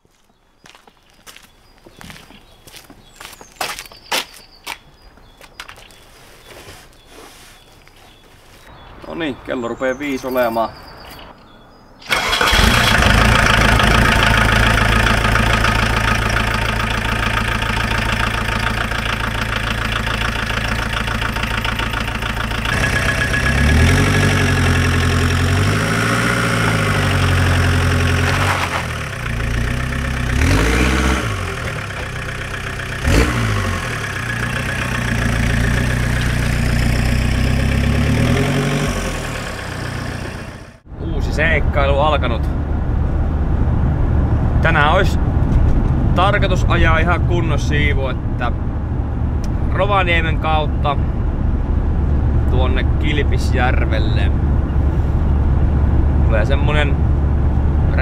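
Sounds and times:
van engine starting and revving: 12.0 - 58.0.

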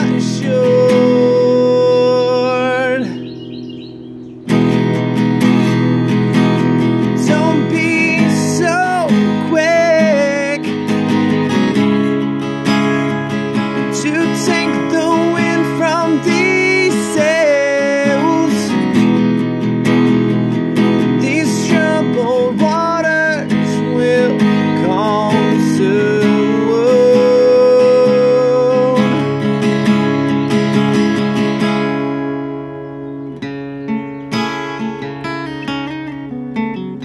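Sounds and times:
person singing: 0.0 - 3.3, 6.9 - 12.3, 13.4 - 19.2, 21.0 - 29.6
acoustic guitar strumming: 0.0 - 37.0.

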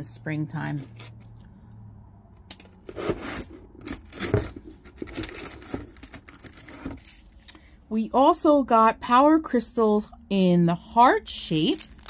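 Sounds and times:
plastic packaging crinkling and tearing: 2.5 - 7.4, 11.5 - 12.0.

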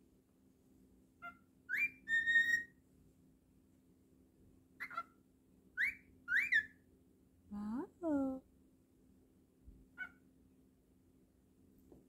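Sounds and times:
cockatiel whistling and chirping: 1.2 - 2.8, 4.8 - 5.1, 5.8 - 6.8, 10.0 - 10.2.

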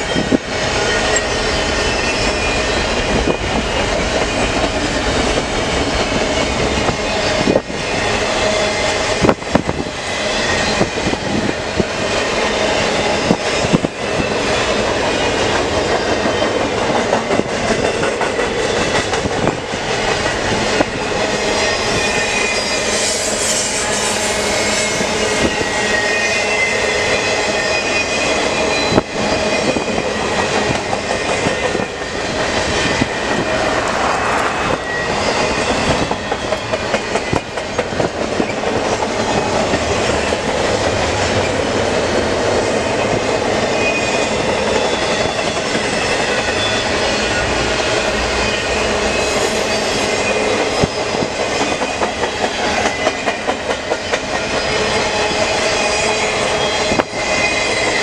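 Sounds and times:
wheels squealing: 0.0 - 5.3, 21.4 - 37.6
freight train rumble and clatter: 0.0 - 58.0.

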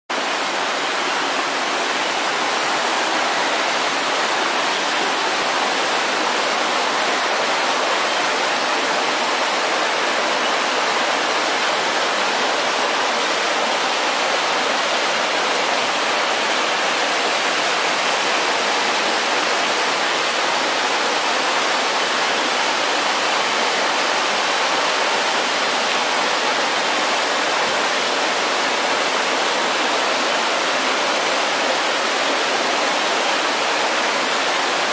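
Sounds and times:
water rushing over boulders: 0.1 - 34.9.

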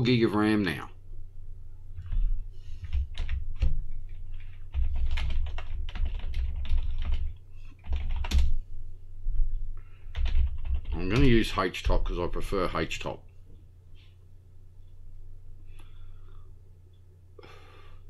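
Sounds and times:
typing on a keyboard: 2.8 - 8.6, 10.1 - 11.3.

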